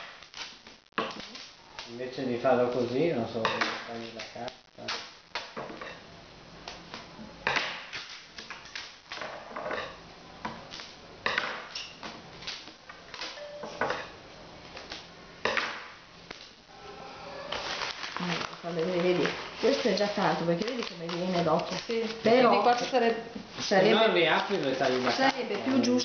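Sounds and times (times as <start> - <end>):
wrapping paper rustling: 0.0 - 3.0, 11.6 - 13.4, 16.2 - 26.0.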